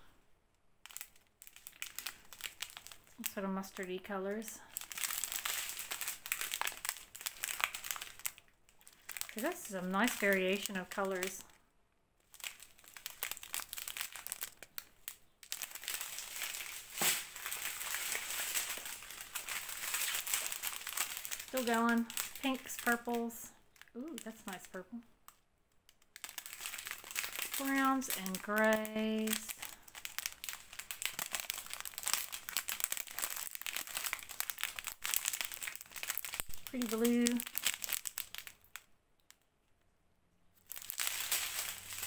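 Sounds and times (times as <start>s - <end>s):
thin plastic crinkling: 0.8s - 11.6s, 12.2s - 39.5s, 40.6s - 42.0s.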